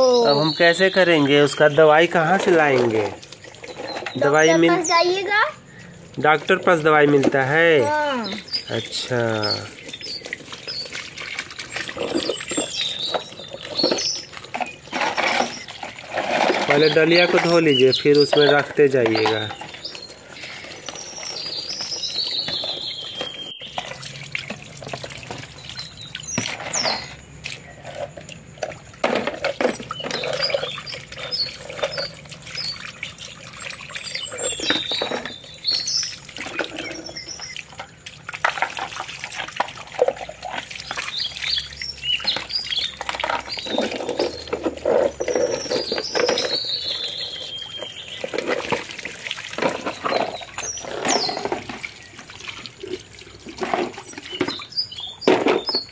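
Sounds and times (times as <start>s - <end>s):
birds chirping: 0.0s - 55.9s
hose water splashing on plastic: 0.0s - 55.9s
plastic toys knocking: 42.2s - 46.7s, 55.2s - 55.9s.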